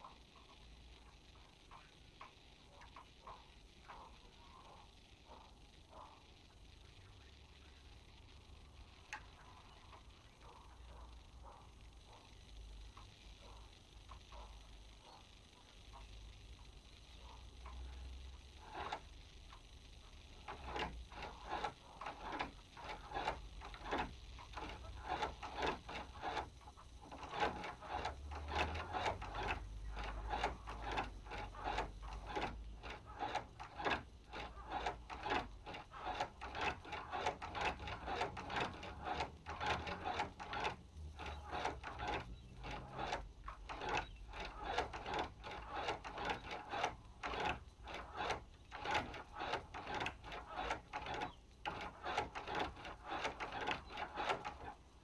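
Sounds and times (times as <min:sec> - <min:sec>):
sewing machine clicking: 0:18.6 - 0:55.0.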